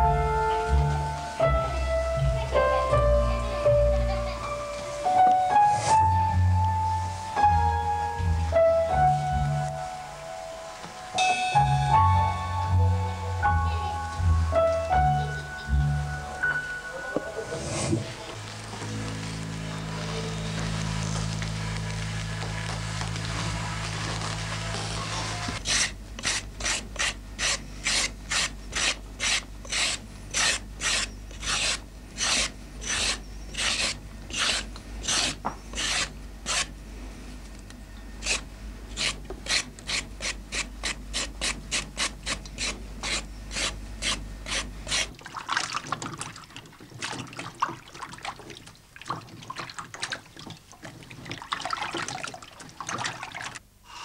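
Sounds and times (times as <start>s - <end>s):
wet rustle of carrots in water: 18.2s - 25.4s, 45.2s - 53.6s
knife scraping carrot: 25.6s - 36.7s, 38.2s - 45.2s.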